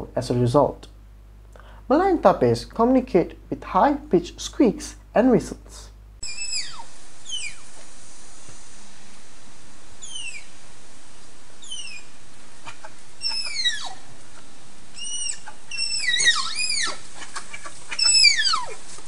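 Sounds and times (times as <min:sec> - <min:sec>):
background hiss: 0:00.0 - 0:19.0
tapirs squeaking whistles: 0:06.2 - 0:07.8, 0:10.0 - 0:10.6, 0:11.6 - 0:14.1, 0:14.9 - 0:17.3, 0:17.9 - 0:18.9.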